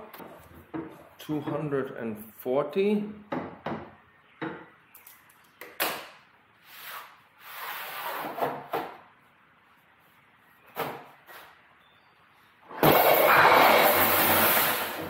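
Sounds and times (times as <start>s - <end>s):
metal scraping: 12.7s - 15.0s.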